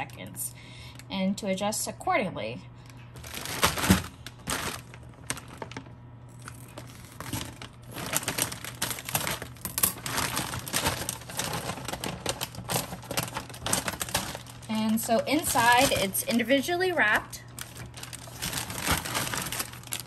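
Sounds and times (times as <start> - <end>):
plastic bag crinkling: 2.9 - 20.0
plastic bag tearing open: 3.2 - 16.5, 17.5 - 20.0.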